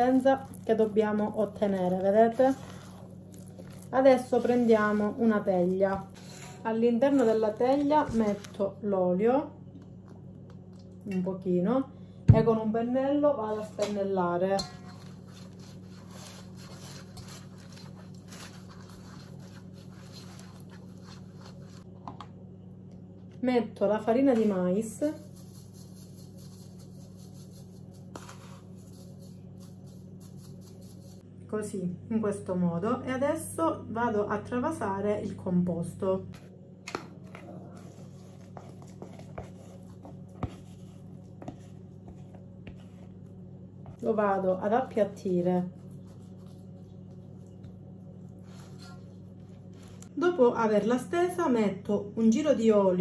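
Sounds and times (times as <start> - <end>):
batter scraping from bowl: 0.0 - 8.6, 13.5 - 21.9, 25.0 - 31.2, 48.4 - 50.1
pastry brush rubbing metal pan: 0.0 - 8.7, 13.5 - 21.9, 24.6 - 31.2, 43.9 - 50.0
steady low hum: 0.0 - 53.0.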